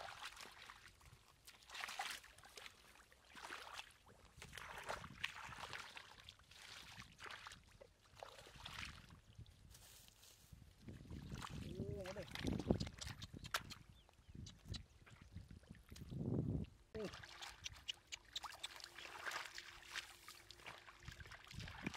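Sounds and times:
hands splashing in muddy water: 0.0 - 9.1, 17.0 - 21.9.

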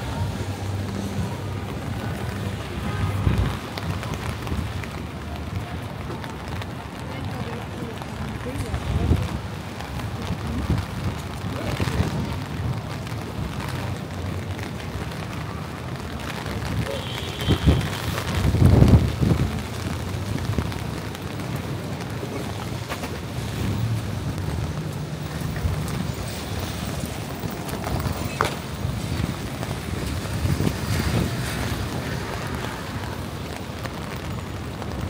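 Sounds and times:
rain and tyres hissing: 0.0 - 35.0
traffic rumble: 0.0 - 35.0.

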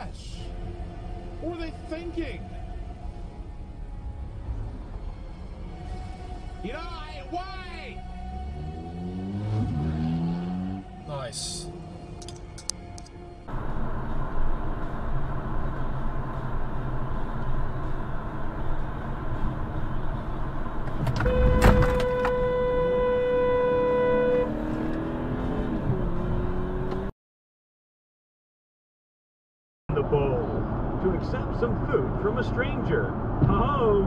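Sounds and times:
car road and engine noise: 0.0 - 27.1, 29.9 - 34.0
car horn held: 21.0 - 24.8.

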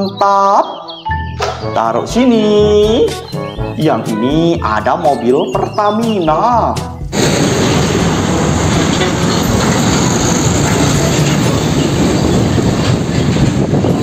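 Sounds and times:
heavy vehicle running noise: 7.0 - 14.0.

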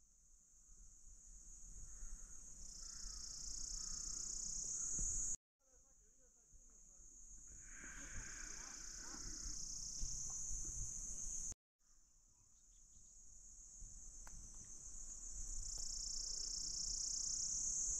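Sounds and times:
insects trilling: 1.5 - 5.4, 6.7 - 11.6, 13.4 - 17.9.

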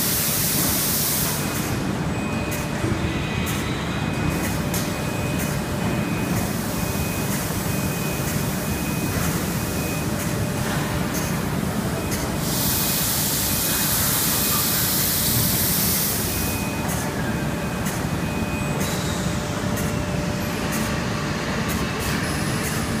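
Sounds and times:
steady machine noise: 0.0 - 23.0
compressed air hiss: 12.4 - 16.2.

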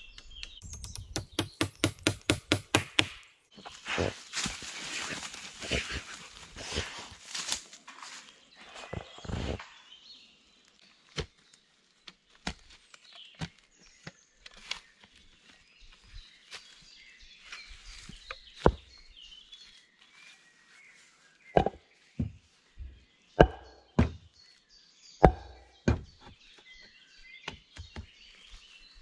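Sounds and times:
birds chirping: 0.0 - 29.0
hand tool knocking on wood: 0.8 - 3.2.

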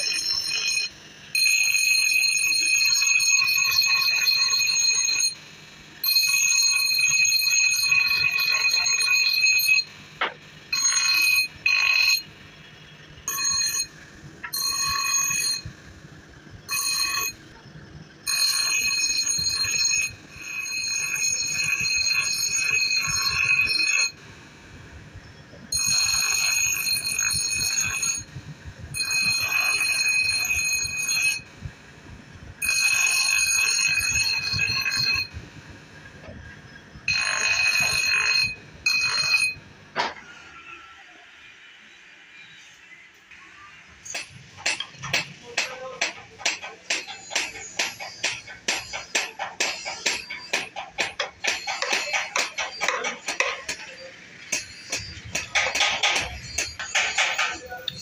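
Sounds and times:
blade screeching on grinder wheel: 46.7 - 58.0.

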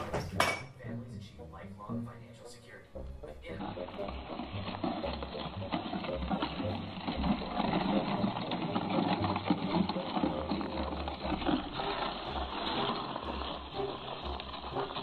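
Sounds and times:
sled runners scraping on snow: 3.5 - 15.0.

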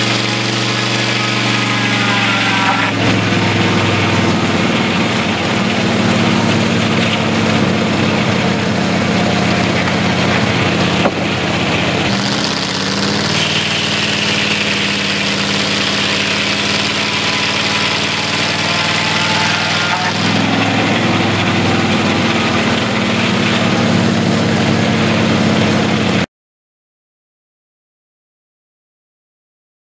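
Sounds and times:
engine droning: 0.0 - 26.3
saw blade hissing through wood: 12.1 - 22.1.

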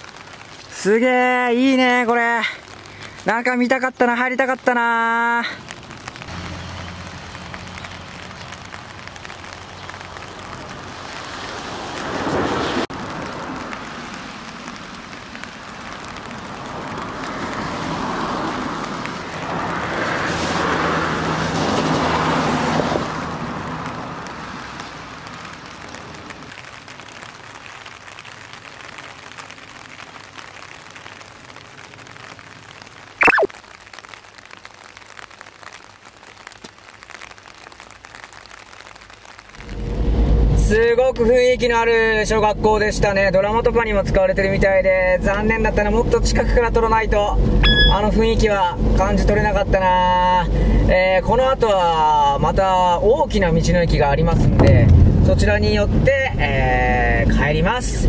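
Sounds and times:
tyres hissing on wet road: 0.0 - 3.8, 4.6 - 42.7, 44.8 - 53.4
steady rain: 0.0 - 58.0
falling whistle-like tone: 33.2 - 33.5, 47.6 - 48.0.

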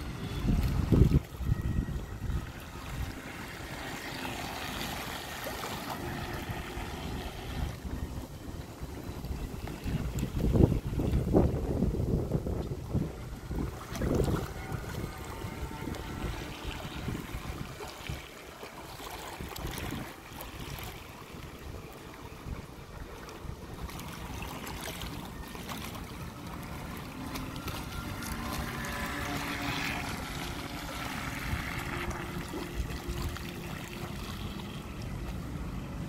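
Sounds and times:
wind blowing across microphone: 0.0 - 3.4, 6.2 - 18.4, 19.4 - 24.2
small waves lapping: 0.0 - 36.0.

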